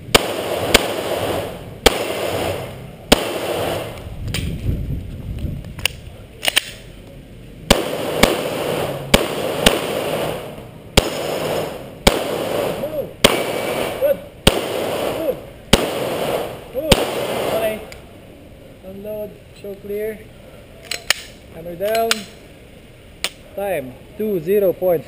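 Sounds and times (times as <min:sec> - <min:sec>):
pistol shots with echo: 0:00.1 - 0:04.0, 0:07.7 - 0:17.9.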